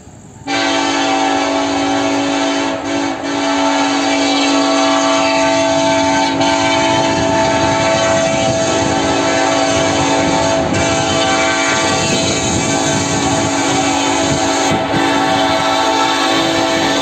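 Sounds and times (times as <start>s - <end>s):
locomotive air horn chord: 0.4s - 17.0s.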